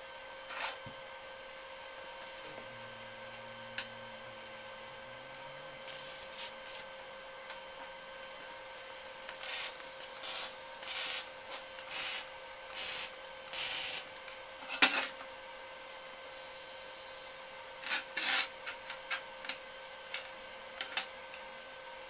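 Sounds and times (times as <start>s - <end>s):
arc welding bursts: 5.8s - 6.9s, 9.4s - 14.1s.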